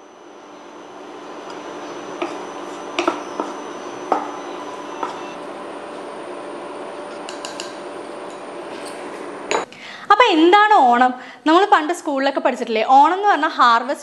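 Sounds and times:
raisins sizzling in ghee: 0.0s - 9.6s.

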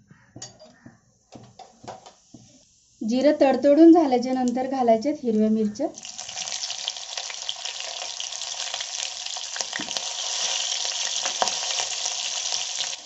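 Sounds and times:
sharp pops of frying: 1.3s - 2.5s, 5.9s - 13.0s
chillies sizzling in hot oil: 1.9s - 13.0s.

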